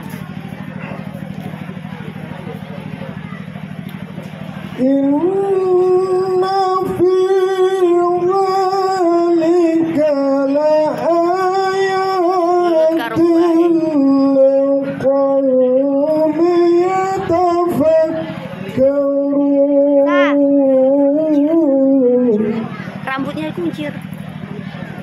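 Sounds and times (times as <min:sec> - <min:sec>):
person chanting recitation: 0:04.8 - 0:22.8.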